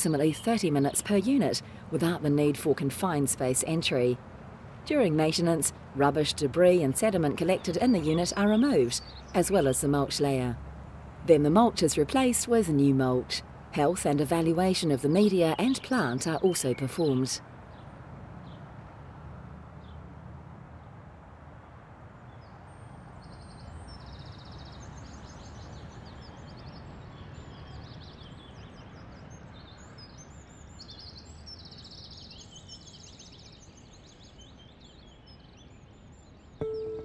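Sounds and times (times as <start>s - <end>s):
small birds chirping: 4.9s - 10.6s, 11.3s - 18.7s, 22.3s - 37.0s.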